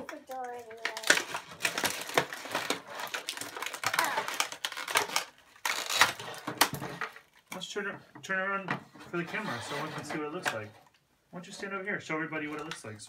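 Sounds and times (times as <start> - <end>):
plastic packaging crinkling: 0.0 - 7.5.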